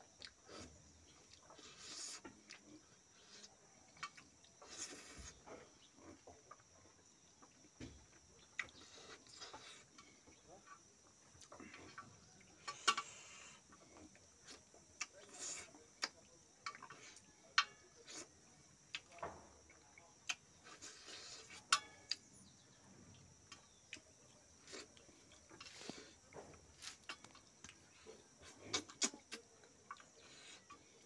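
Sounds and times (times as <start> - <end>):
chewing and lip smacks: 23.1 - 31.0.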